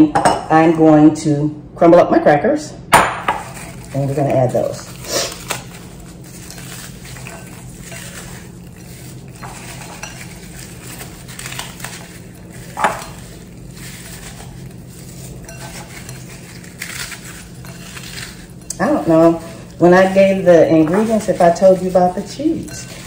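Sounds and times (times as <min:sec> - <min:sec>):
crackers crunching: 0:03.2 - 0:23.0.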